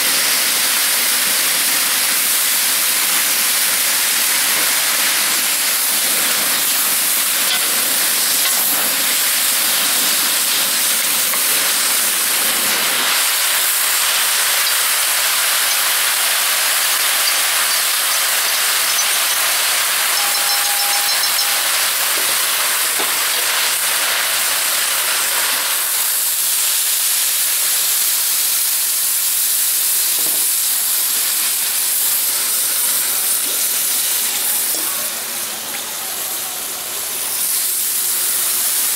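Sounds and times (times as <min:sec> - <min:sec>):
food sizzling in a wok: 0:00.0 - 0:38.9.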